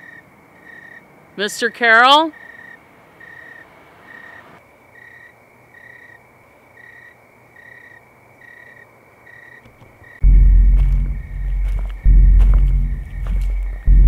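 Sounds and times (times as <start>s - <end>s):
cricket chirping: 0.0s - 14.0s
loud low rumble: 10.2s - 14.0s.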